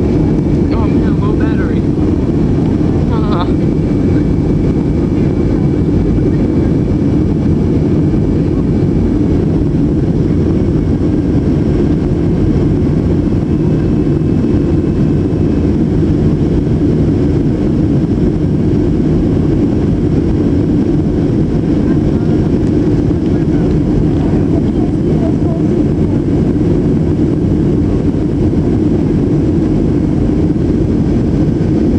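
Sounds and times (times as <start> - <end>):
rushing air: 0.0 - 24.2
jet engines roaring: 0.0 - 31.9.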